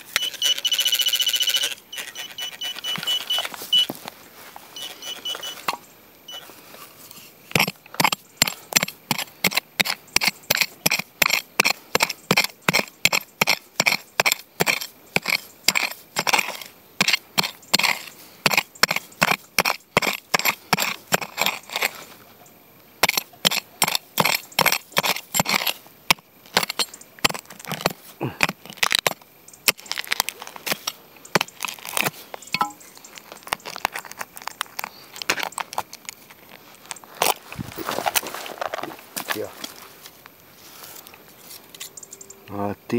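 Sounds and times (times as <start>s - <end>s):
dry grass rustling: 1.6s - 5.8s, 25.7s - 41.7s.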